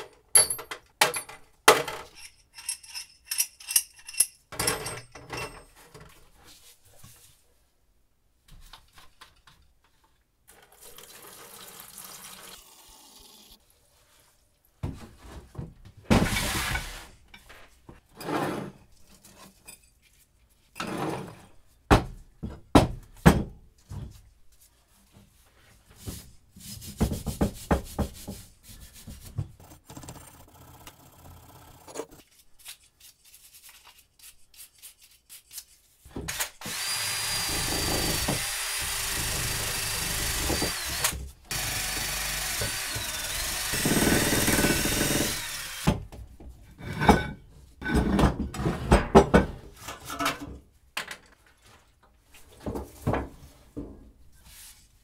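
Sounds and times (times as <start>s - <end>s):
power drill wire brush on metal: 36.6s - 45.9s.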